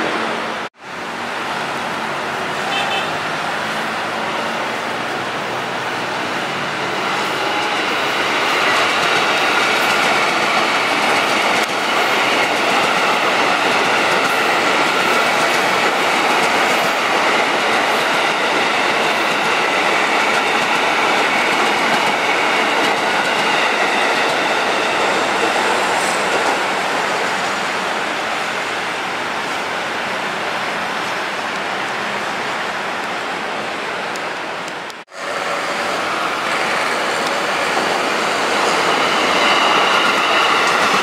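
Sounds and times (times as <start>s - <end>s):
held tones from train: 0.0s - 33.4s, 34.1s - 41.0s
train wheels rushing on rails: 0.0s - 41.0s.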